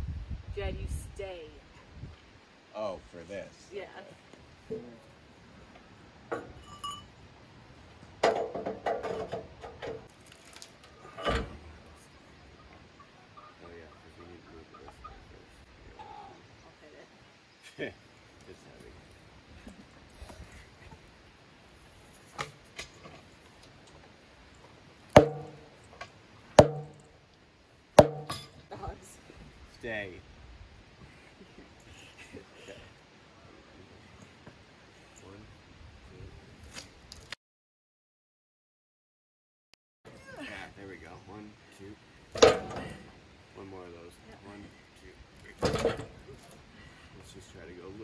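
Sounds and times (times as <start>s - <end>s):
pry bar clanking on metal: 25.1s - 25.7s, 26.6s - 27.1s, 28.0s - 28.6s, 42.4s - 43.0s, 45.6s - 46.2s
sledgehammer striking metal: 25.2s - 25.7s, 26.6s - 27.0s, 28.0s - 28.6s.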